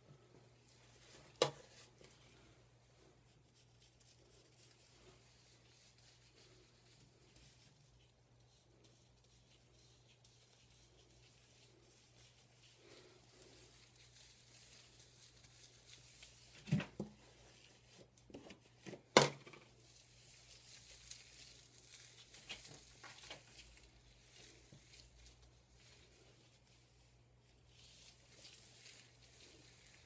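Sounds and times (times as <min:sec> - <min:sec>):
gloved hands working hair: 0:00.0 - 0:30.0.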